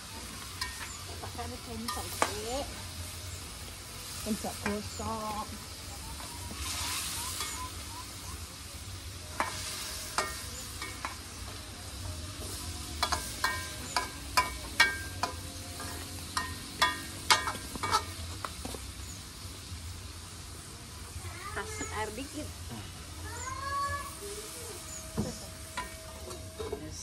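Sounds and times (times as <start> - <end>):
food sizzling: 0.0 - 27.0
metal spatula clanking in wok: 9.3 - 11.2, 13.0 - 18.2.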